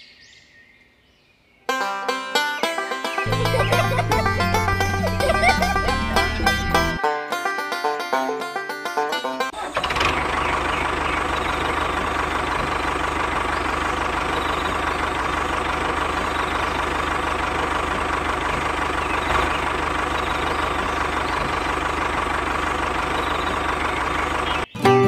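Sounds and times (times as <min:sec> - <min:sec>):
tractor engine idling: 0:02.7 - 0:07.7, 0:09.4 - 0:24.7.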